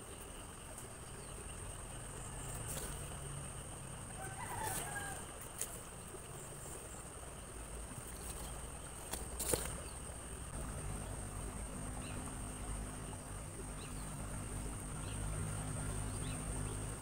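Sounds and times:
high insect drone: 0.0 - 17.0
faint rooster crowing: 4.1 - 5.8.

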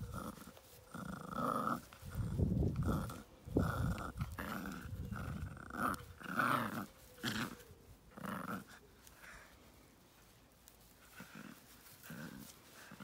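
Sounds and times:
puppy growling: 0.0 - 8.9.

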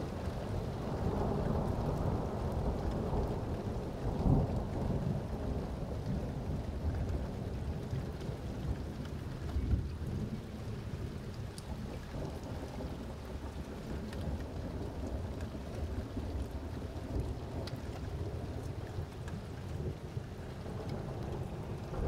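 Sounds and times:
raindrop ticks: 0.0 - 22.0
steady rain: 0.0 - 22.0
thunder rumbling: 9.6 - 22.0.

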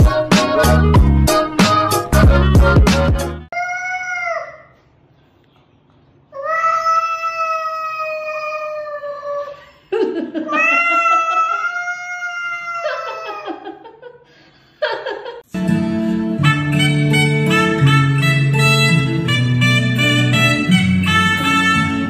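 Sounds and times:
cat yowling: 10.5 - 13.5
guitar music: 15.5 - 22.0.

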